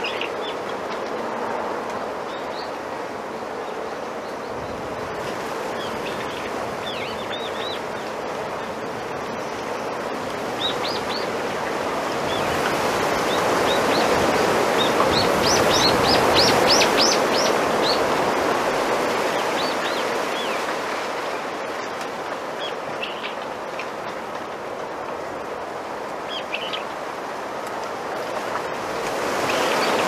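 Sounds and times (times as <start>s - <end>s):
wind rustling bamboo leaves: 0.0s - 30.0s
small birds chirping: 14.8s - 18.1s, 22.6s - 23.5s, 26.3s - 27.0s.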